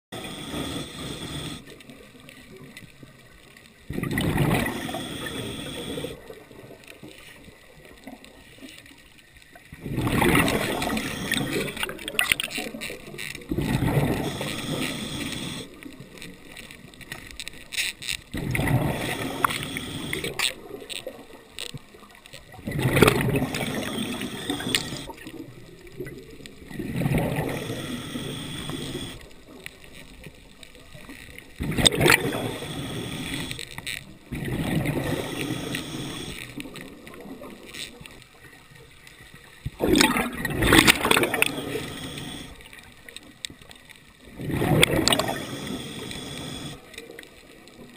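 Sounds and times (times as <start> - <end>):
underwater bubbling: 0.1 - 47.9
low hiss: 0.2 - 3.8, 12.8 - 22.1, 23.1 - 39.8, 40.8 - 44.3, 45.0 - 47.7
sharp clicks: 19.0 - 20.6, 23.0 - 25.2.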